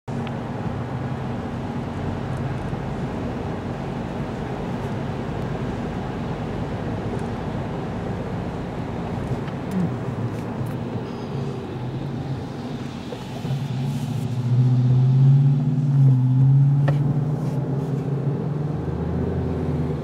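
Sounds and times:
low engine hum: 0.1s - 20.0s
tyre hiss on wet road: 12.2s - 14.7s.

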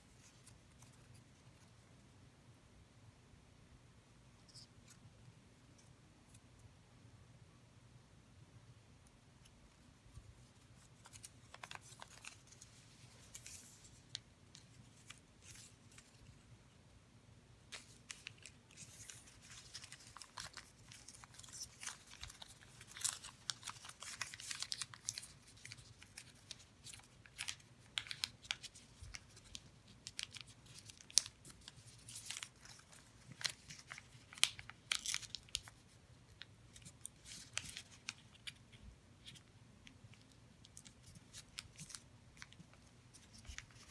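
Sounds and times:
paper crinkling and crackling: 10.1s - 16.4s, 17.7s - 43.9s.

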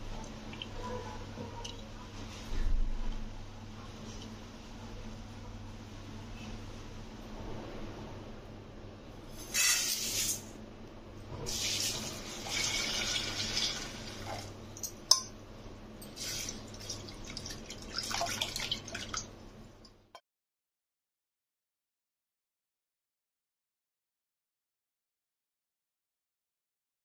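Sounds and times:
water pouring into steel bowl: 11.5s - 14.5s, 16.2s - 19.3s.

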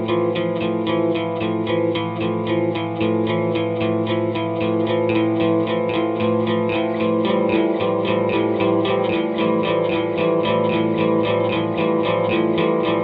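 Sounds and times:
guitar picking with echo: 0.0s - 13.0s.

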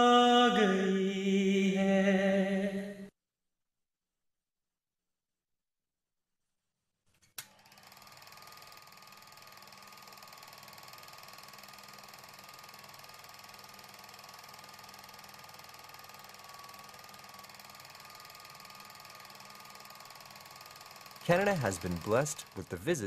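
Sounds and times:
film projector clattering: 7.4s - 22.9s.

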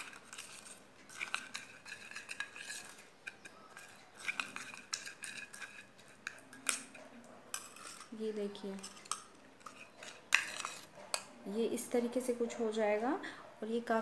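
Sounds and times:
spoon scraping glass bowl: 0.0s - 11.4s
spoon clinking glass: 8.8s - 11.3s.

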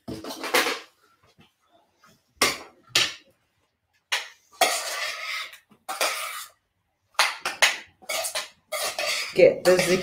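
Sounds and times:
utensil scraping a steel saucepan: 4.5s - 6.6s, 8.0s - 10.0s.

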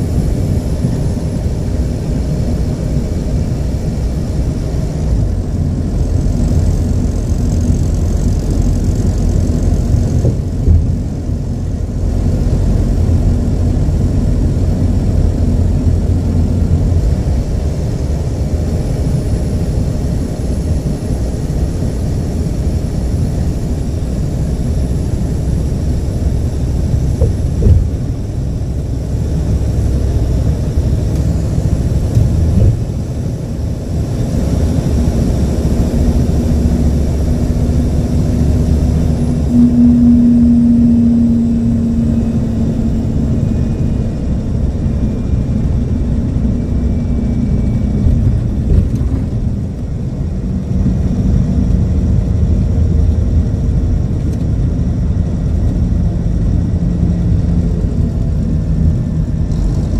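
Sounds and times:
diesel engine rumbling: 0.0s - 59.9s
humming tone: 34.4s - 50.2s.

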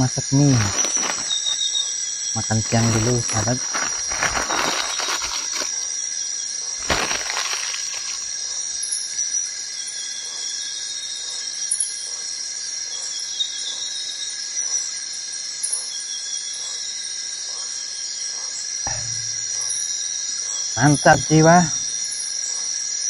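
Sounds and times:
insect chorus drone: 0.0s - 23.0s
single knock: 18.9s - 19.8s.

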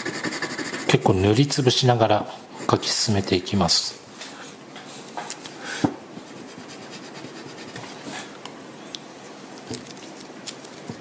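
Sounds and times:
pencil scratching on paper: 0.0s - 1.0s.

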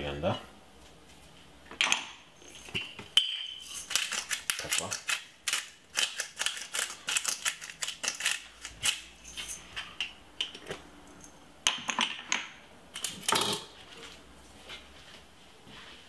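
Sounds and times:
pepper mill grinding: 3.6s - 9.6s.

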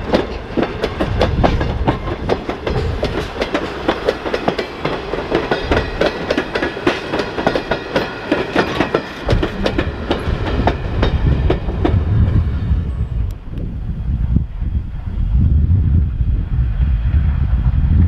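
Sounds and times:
train wheels clicking on rail joints: 0.0s - 13.7s
low rumble: 9.2s - 18.0s.

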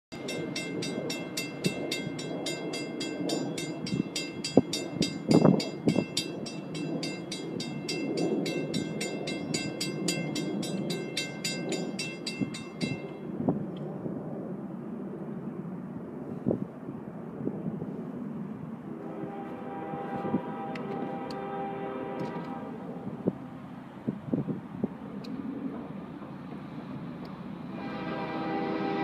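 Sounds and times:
railroad crossing bell ringing: 0.1s - 13.4s
train rumbling past: 0.1s - 29.0s.

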